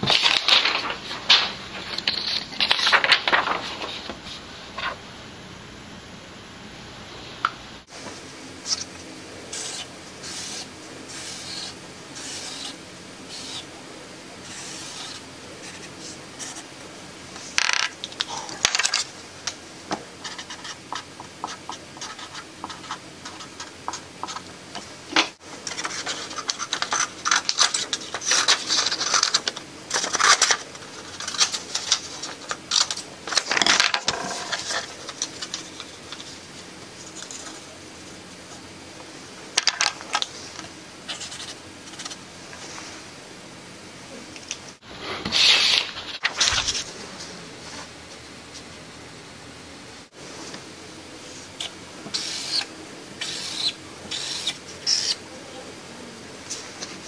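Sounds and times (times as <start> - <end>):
paper being handled: 0.0 - 5.0, 44.9 - 47.0
marker squeaking on paper: 9.5 - 13.7, 14.4 - 16.6, 51.6 - 55.2.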